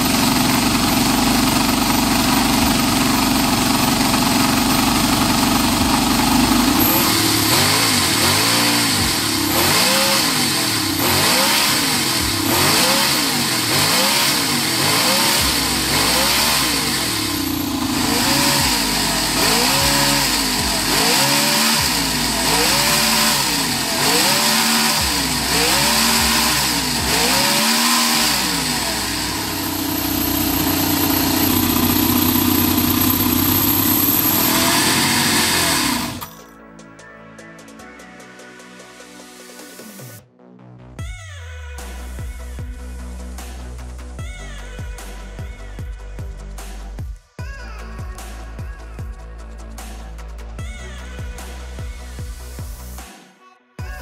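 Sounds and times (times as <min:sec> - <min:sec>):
model engine idling and revving: 0:00.0 - 0:36.4.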